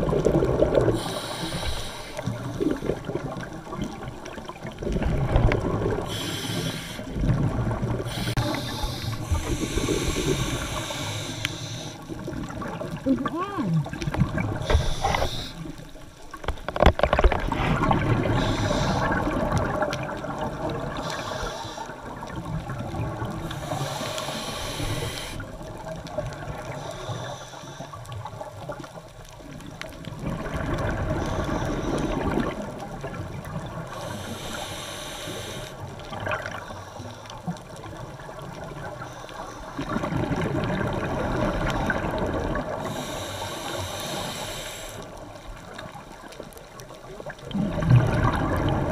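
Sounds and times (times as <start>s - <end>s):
bubbles hissing: 0.0s - 28.6s, 37.8s - 46.0s, 47.0s - 48.9s
underwater water swishing: 0.0s - 48.9s.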